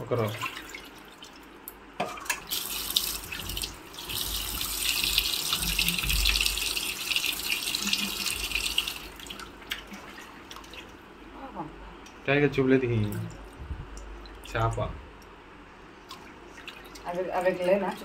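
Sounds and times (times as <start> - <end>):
tap water running into sink: 2.0 - 10.9.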